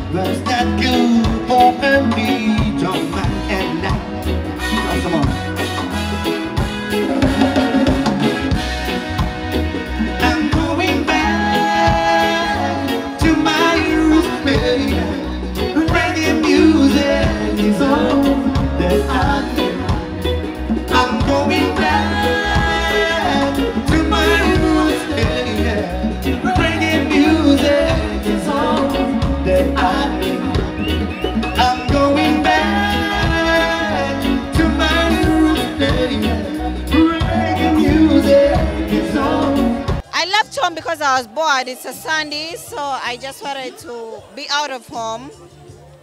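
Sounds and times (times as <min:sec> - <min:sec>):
men singing: 0:00.0 - 0:04.4, 0:09.9 - 0:40.0
electric bass: 0:00.0 - 0:40.1
drums: 0:00.0 - 0:46.0
guitar: 0:00.0 - 0:46.0.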